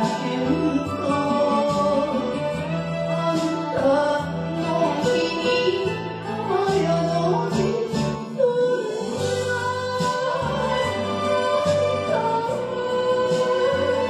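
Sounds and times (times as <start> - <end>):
band with steady bass: 0.0 - 14.0
person singing slow melody: 0.0 - 14.0.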